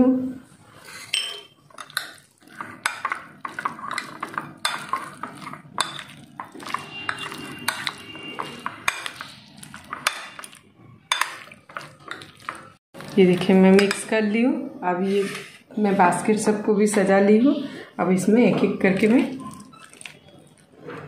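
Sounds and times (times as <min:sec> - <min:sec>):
spoon stirring thick mixture: 0:00.4 - 0:14.4, 0:18.1 - 0:21.0
spoon clinking on glass bowl: 0:01.1 - 0:02.2, 0:05.8 - 0:09.3.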